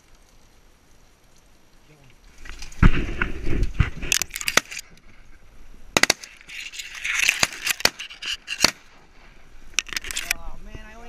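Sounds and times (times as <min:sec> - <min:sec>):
dry reeds crackling: 0:00.0 - 0:11.0
sharp clicks: 0:06.0 - 0:08.8.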